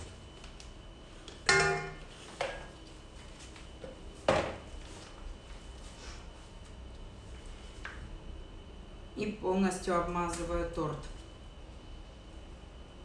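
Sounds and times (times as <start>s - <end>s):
utensils knocking on containers: 1.5s - 2.1s.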